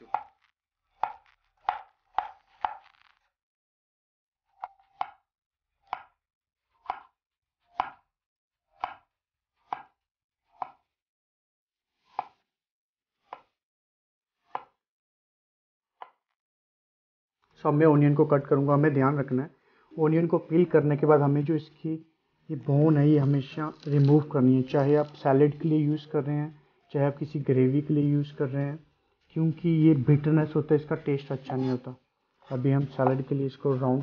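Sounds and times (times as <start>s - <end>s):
knife slicing carrot on board: 5.8s - 6.2s, 6.8s - 7.1s, 8.8s - 10.0s, 10.6s - 10.8s, 12.0s - 12.4s, 13.2s - 13.6s, 14.4s - 14.8s.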